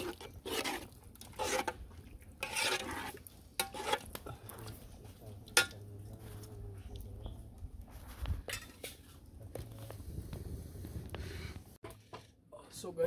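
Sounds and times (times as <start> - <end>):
spoon scraping soup in metal pot: 0.0 - 7.0.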